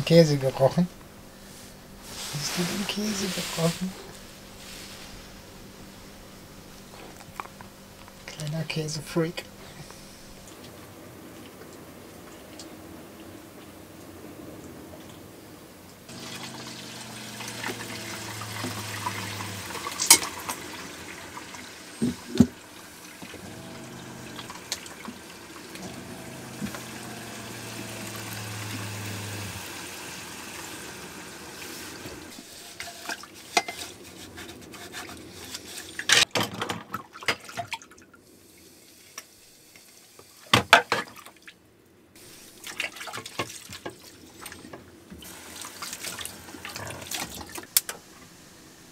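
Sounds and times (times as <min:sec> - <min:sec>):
low hum: 0:16.1 - 0:32.4.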